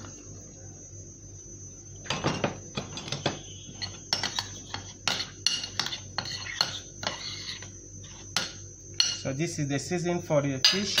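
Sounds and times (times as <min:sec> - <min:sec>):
metal spoon clinking in bowl: 0:08.4 - 0:09.3.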